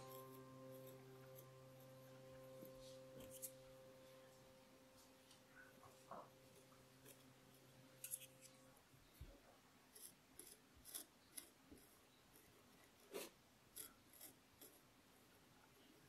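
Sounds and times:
wooden tool scratching clay: 0:09.9 - 0:14.9.

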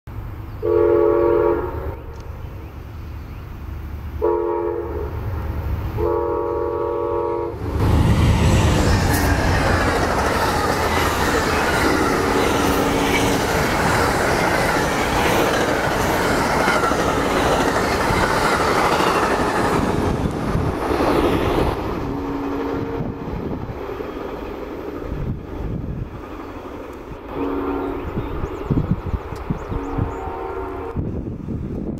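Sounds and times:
train horn blasts: 0:00.6 - 0:02.2, 0:04.2 - 0:05.2, 0:06.0 - 0:07.6, 0:22.0 - 0:23.4, 0:27.3 - 0:28.2, 0:29.7 - 0:31.2
train wheels rumbling on rails: 0:07.5 - 0:31.9.

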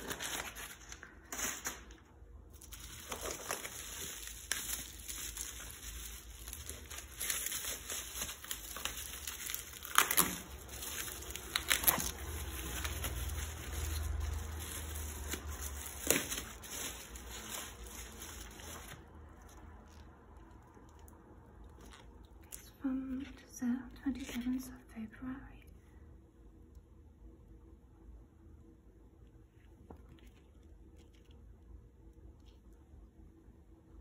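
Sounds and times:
bubble wrap rustling and crinkling: 0:00.0 - 0:24.9.

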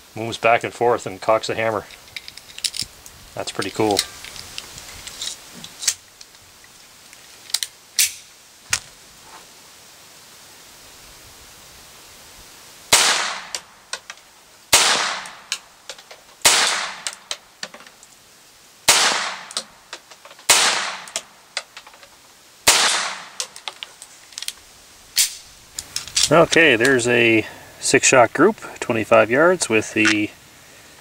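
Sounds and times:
pistol slide clicks: 0:07.6 - 0:08.2
pistol shots: 0:12.9 - 0:13.6, 0:14.7 - 0:15.4, 0:16.4 - 0:17.1, 0:18.9 - 0:19.6, 0:20.5 - 0:21.2, 0:22.7 - 0:23.4.

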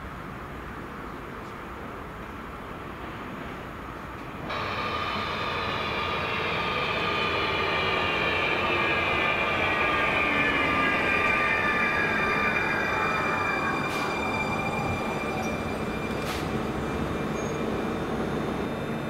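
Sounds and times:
wheels rumbling on rail: 0:00.2 - 0:19.0
train traction motors whining: 0:04.5 - 0:19.0.

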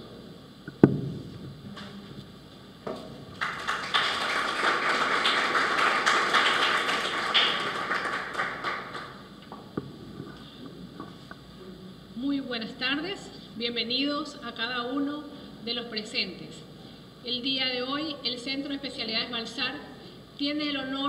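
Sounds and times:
audience applauding: 0:03.3 - 0:09.3.

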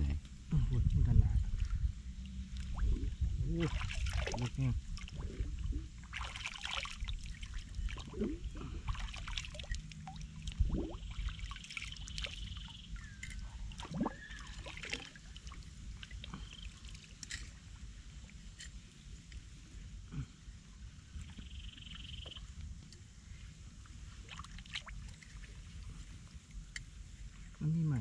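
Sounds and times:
shallow water trickling: 0:01.4 - 0:19.3
water drips and plops: 0:01.6 - 0:05.4, 0:06.1 - 0:17.5.

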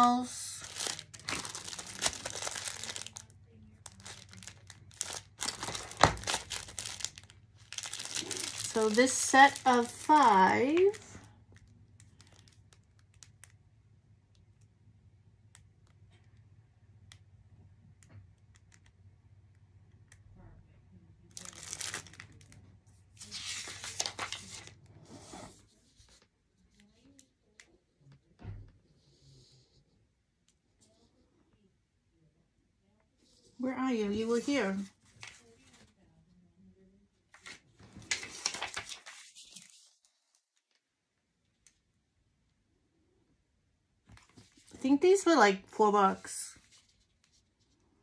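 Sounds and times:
plastic packet crinkling: 0:00.0 - 0:13.6, 0:21.3 - 0:22.6, 0:23.2 - 0:24.7, 0:37.4 - 0:40.8.

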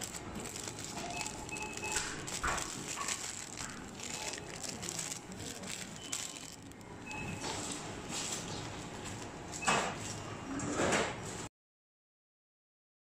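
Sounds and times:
plastic bags rustling: 0:00.0 - 0:10.2.

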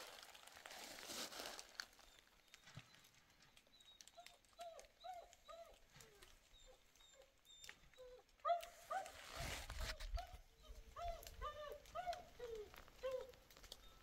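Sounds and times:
dog whimpering: 0:03.8 - 0:14.0.

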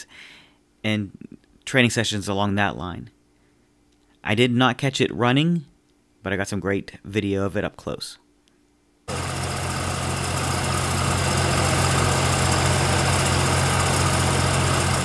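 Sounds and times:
heavy engine idling: 0:09.1 - 0:15.0.

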